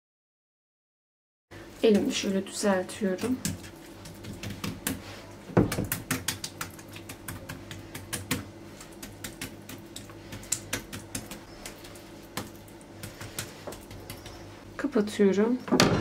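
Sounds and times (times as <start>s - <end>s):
fingers tapping and crinkling dough: 1.9s - 14.6s.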